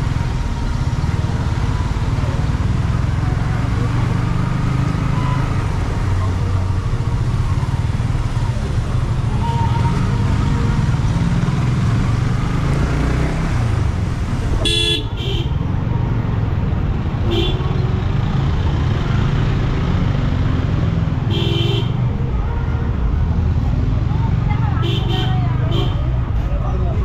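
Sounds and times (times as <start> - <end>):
engines rumbling in traffic: 0.0 - 27.0
vehicle horn beeps: 14.6 - 15.4.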